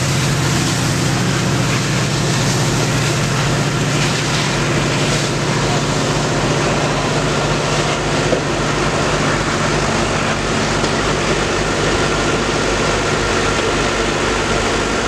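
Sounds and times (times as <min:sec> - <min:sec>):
diesel engine idling: 0:00.0 - 0:15.0.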